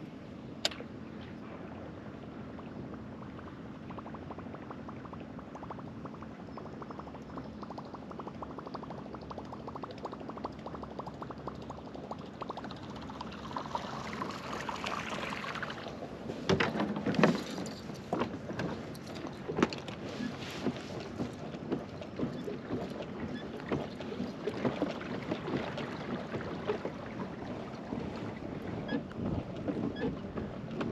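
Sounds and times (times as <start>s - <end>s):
knocks and rustles on kayak: 16.2s - 30.9s.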